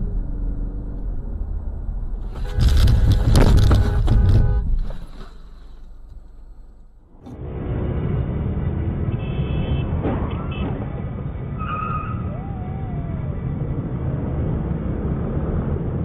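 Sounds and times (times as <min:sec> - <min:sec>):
vehicle crash bang and squeal: 0:07.3 - 0:13.4
wavering voice-like call: 0:12.0 - 0:13.6
idling scooters and traffic: 0:12.1 - 0:16.0.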